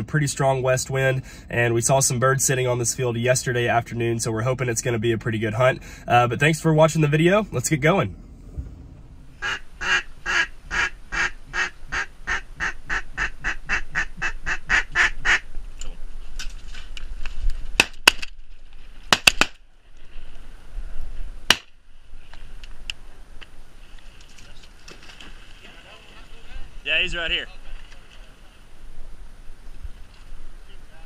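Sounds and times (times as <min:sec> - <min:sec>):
duck quacking: 0:09.4 - 0:15.4
sharp cracks: 0:17.7 - 0:19.7, 0:21.5 - 0:21.8.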